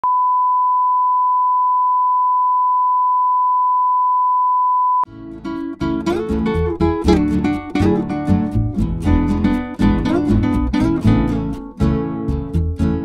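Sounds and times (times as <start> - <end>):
acoustic guitar music: 5.1 - 13.0.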